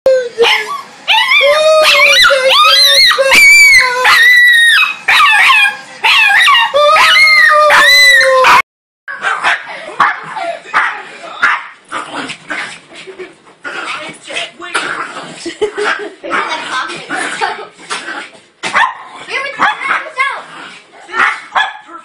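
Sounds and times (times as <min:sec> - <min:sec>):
puppy howling: 0:00.1 - 0:08.6.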